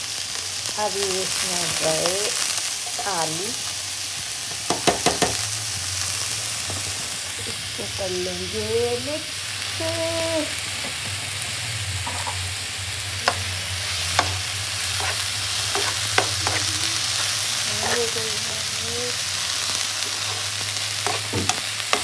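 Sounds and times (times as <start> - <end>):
vegetables sizzling in hot oil: 0.0 - 22.0
utensil tapping against pan: 13.2 - 13.4.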